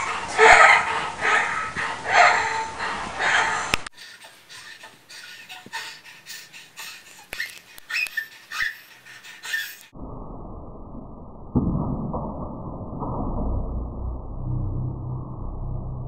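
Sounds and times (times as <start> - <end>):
fast rasping breathing: 0.0 - 9.9
small clicks: 7.3 - 8.3.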